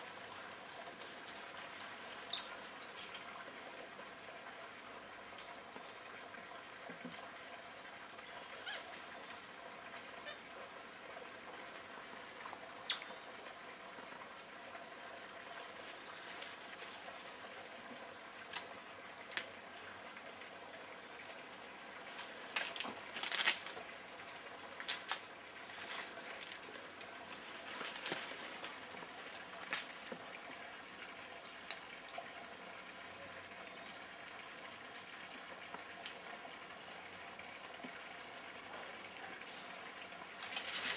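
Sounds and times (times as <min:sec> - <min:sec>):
rustles and snaps in leaves: 0:18.5 - 0:18.7, 0:22.2 - 0:23.8, 0:24.8 - 0:30.2, 0:40.4 - 0:40.9.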